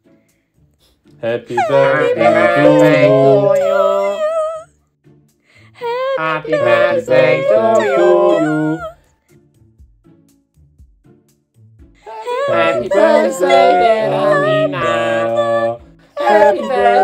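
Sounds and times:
group of voices singing: 1.2s - 4.5s, 5.8s - 9.0s, 12.0s - 17.0s.

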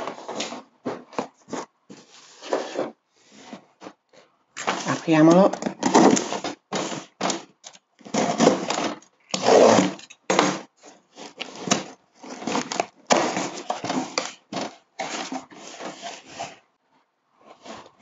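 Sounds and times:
packing tape tearing: 4.6s - 10.7s, 11.3s - 15.8s
box cutter cutting cardboard: 4.6s - 16.6s.

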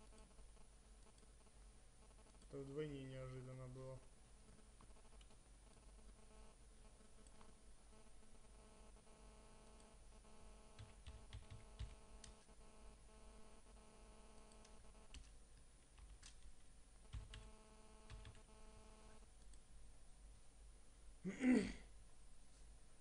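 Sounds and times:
keyboard typing: 0.0s - 2.9s, 4.5s - 19.6s
low electrical hum: 0.0s - 23.0s.

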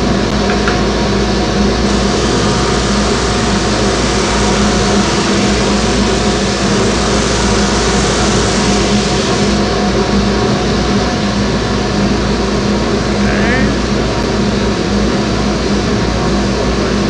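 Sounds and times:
disc sander motor hum: 1.8s - 11.0s
wood being sanded: 1.9s - 9.7s.

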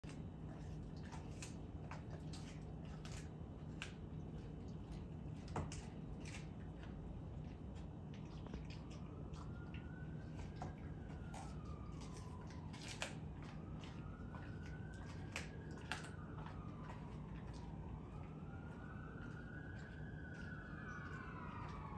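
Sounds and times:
dog chewing bones: 0.0s - 21.9s
faint siren rising and falling: 8.5s - 21.9s.

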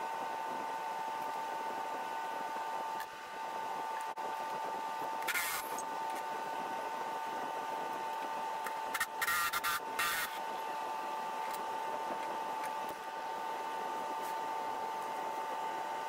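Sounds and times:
faint constant whine: 0.0s - 16.0s
steady background hum: 0.0s - 16.0s
cordless power tool bursts: 5.2s - 5.8s, 8.9s - 10.4s.

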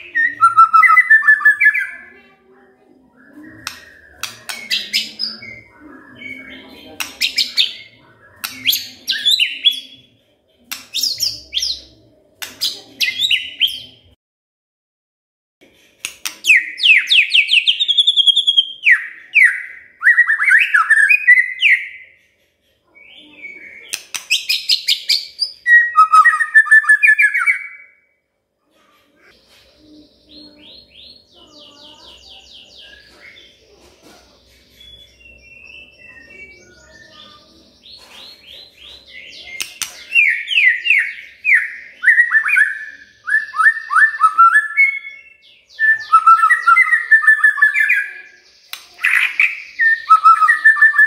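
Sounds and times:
bird singing whistled phrases: 0.0s - 2.1s, 3.1s - 10.0s, 16.4s - 22.2s, 23.0s - 28.1s, 39.1s - 51.0s.

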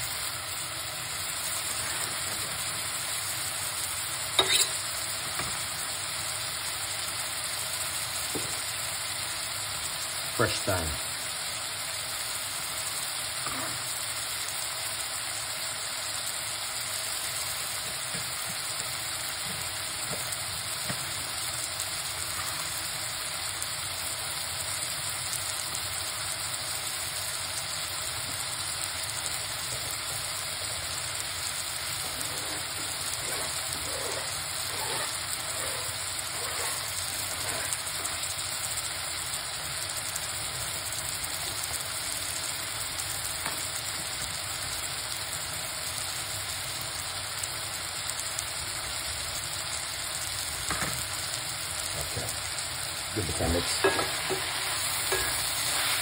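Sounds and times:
vegetables sizzling in a pot: 0.0s - 56.0s
faint crackles: 28.1s - 44.4s.

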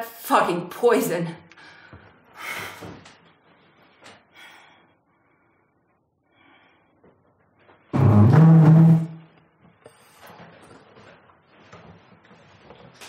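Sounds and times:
woman breathing hard: 1.6s - 3.1s, 4.2s - 7.1s.

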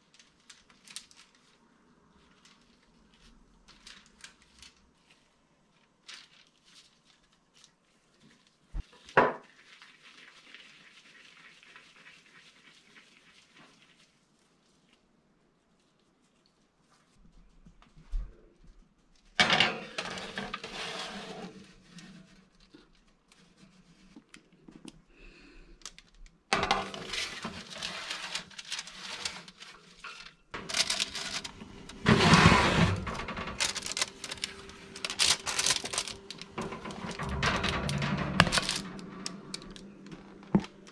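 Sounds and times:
metal baking trays clattering: 19.4s - 21.6s, 26.5s - 40.9s.

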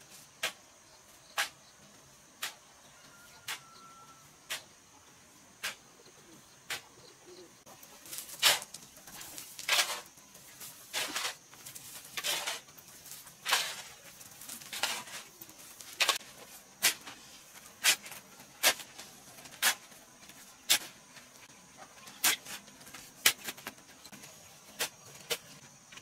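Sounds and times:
shovel scraping soil and gravel: 0.0s - 0.6s, 5.6s - 5.9s, 7.8s - 25.6s.

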